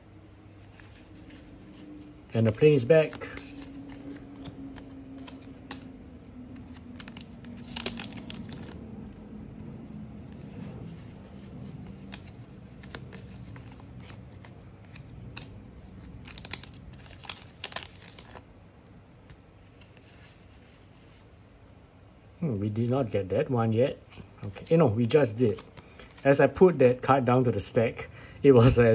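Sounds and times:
airplane droning overhead: 0:00.0 - 0:18.6
cards crinkling and tearing: 0:00.3 - 0:18.5, 0:19.2 - 0:20.8, 0:24.1 - 0:27.1.

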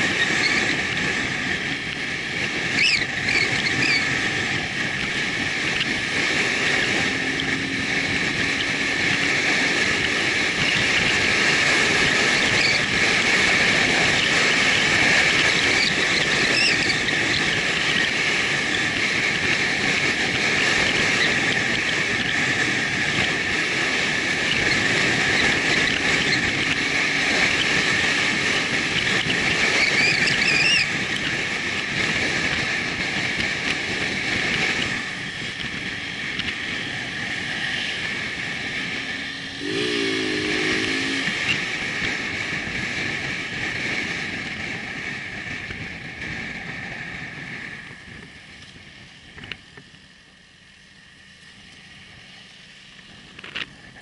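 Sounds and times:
motorcycle engine: 0:00.0 - 0:18.4, 0:33.6 - 0:43.2
wind and road noise: 0:00.0 - 0:54.0
short horn-like tone: 0:39.5 - 0:41.8.

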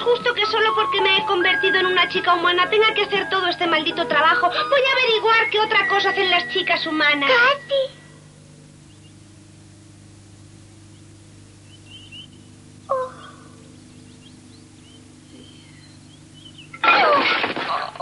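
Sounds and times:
steady low hum: 0:00.0 - 0:18.0
birds chirping: 0:08.6 - 0:16.9
bird falling call: 0:10.8 - 0:16.8.

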